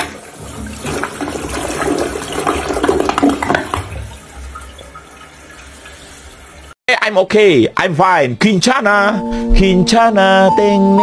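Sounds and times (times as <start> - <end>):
toilet flushing: 0.0 - 6.8.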